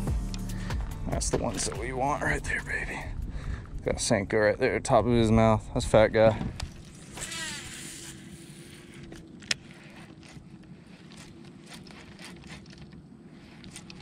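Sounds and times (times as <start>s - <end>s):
fishing reel spool whirring: 6.7s - 14.0s
fishing reel clicking: 6.9s - 9.8s.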